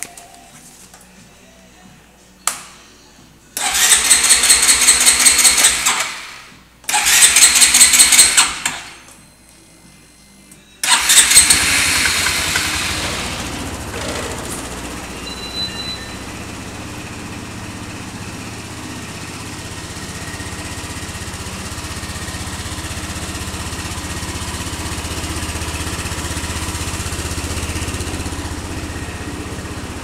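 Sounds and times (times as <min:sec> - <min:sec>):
scooter engine idling: 0:03.6 - 0:06.2, 0:10.9 - 0:30.0
electric starter cranking: 0:03.6 - 0:09.1, 0:10.8 - 0:15.2.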